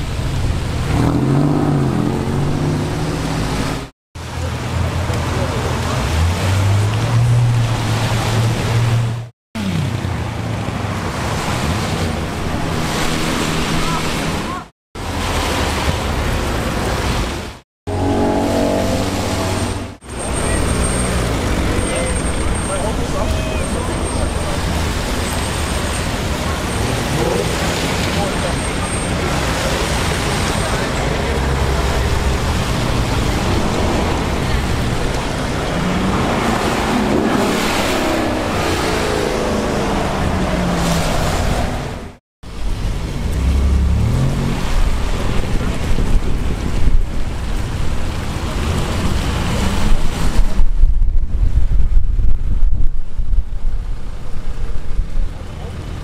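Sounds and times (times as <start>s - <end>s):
cars passing on wet road: 0.0s - 52.0s
car engine passing: 5.2s - 42.2s, 42.8s - 46.8s.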